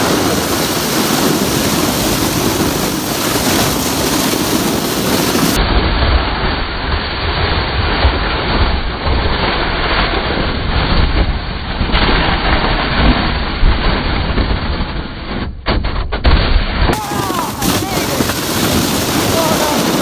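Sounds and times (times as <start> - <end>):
sled scraping over snow: 0.0 - 15.5, 16.7 - 20.0
sharp knocks of sled jolting: 10.8 - 20.0.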